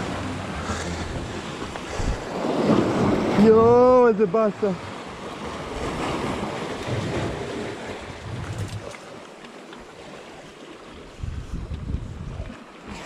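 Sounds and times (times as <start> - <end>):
wind on microphone: 0.0 - 4.1, 5.4 - 9.0, 11.0 - 13.0
sea surf washing among rocks: 0.0 - 13.0.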